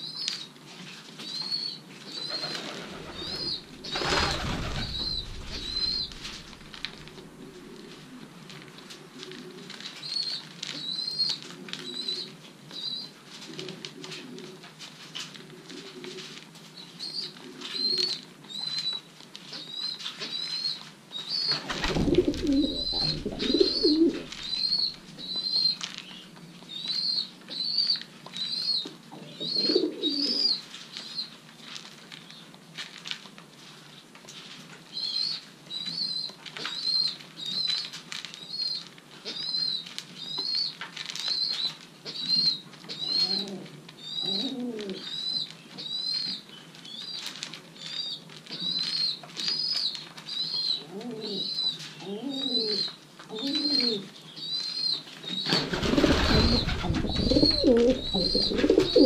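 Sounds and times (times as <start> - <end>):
wings flapping: 2.2 - 7.8, 21.5 - 25.2, 55.4 - 59.0
pigeons cooing: 2.2 - 8.3, 21.5 - 25.7, 29.3 - 30.6, 43.0 - 45.1, 50.7 - 54.1, 55.5 - 59.0.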